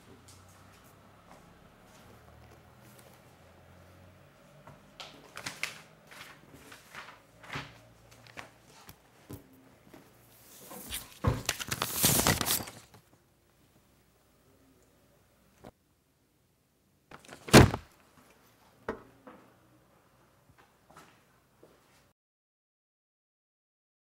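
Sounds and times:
paper rustling: 5.1 - 9.0, 10.4 - 13.0, 17.1 - 17.9
paper crumpling: 5.3 - 8.9, 10.4 - 13.0, 17.1 - 17.8.

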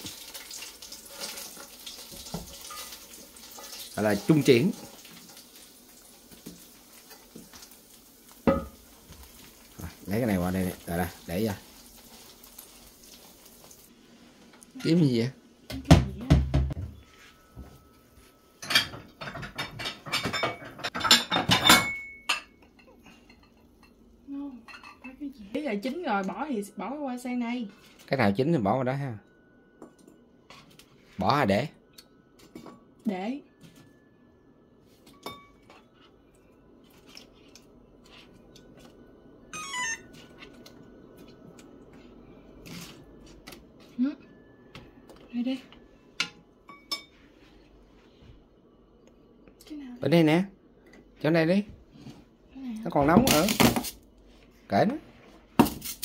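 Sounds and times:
metal kitchenware clattering: 1.1 - 5.1, 18.6 - 24.0
falling electronic beeps: 39.5 - 40.2.

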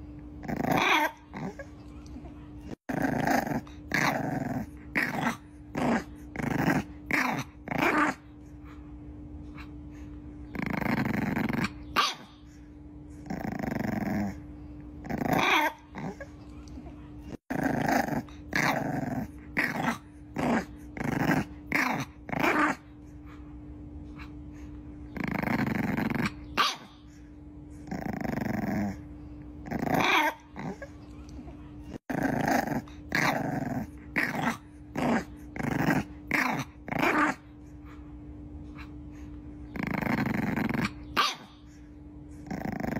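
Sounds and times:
faint steady hum: 0.0 - 42.9
puppy growling and yapping: 0.0 - 42.9.

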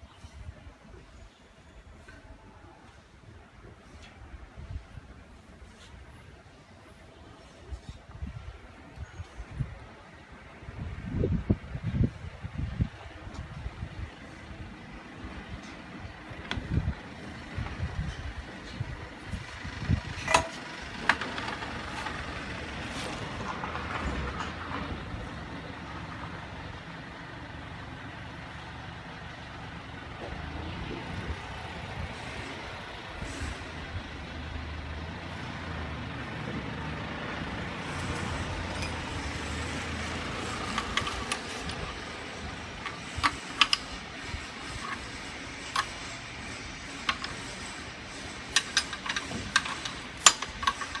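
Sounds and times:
low engine-like rumble: 0.0 - 51.0
spanner clinking on metal nuts: 38.2 - 51.0.

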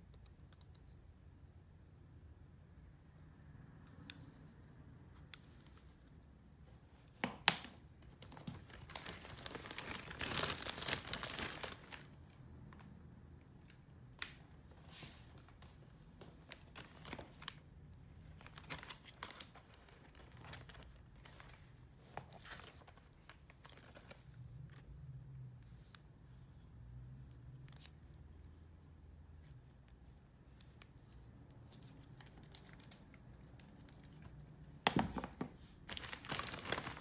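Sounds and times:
crinkling sheet: 5.2 - 24.9, 27.1 - 37.0.

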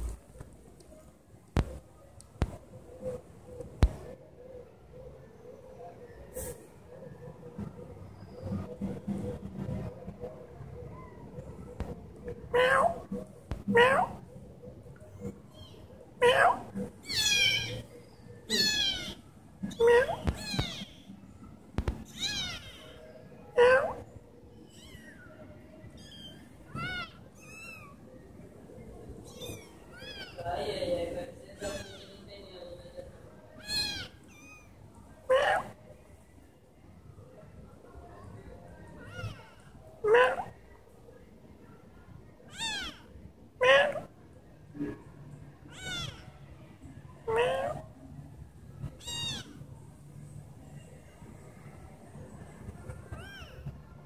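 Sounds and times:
kittens mewing: 15.1 - 17.9, 18.5 - 21.1, 22.0 - 23.0, 26.0 - 28.0, 29.2 - 30.4, 33.6 - 35.8, 42.5 - 44.1.

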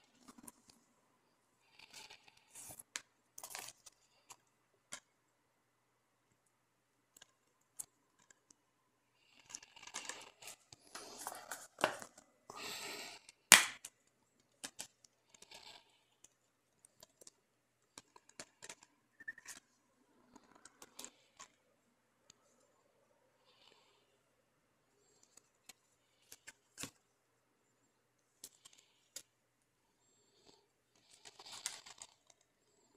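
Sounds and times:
plastic cases rustling and sliding: 9.9 - 12.3
sharp plastic snap: 13.5 - 13.9.

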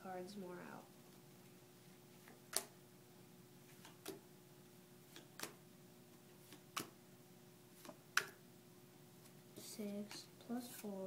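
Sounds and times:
playing cards tapping on desk: 6.5 - 7.0.

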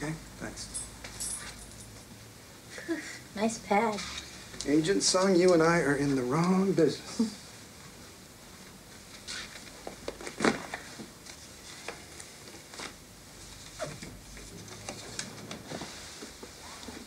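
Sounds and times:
objects and papers being moved: 9.2 - 17.0.

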